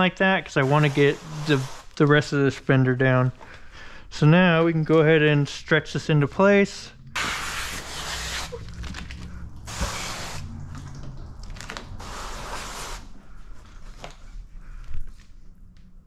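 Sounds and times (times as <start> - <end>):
steady low hum: 5.7 - 11.5.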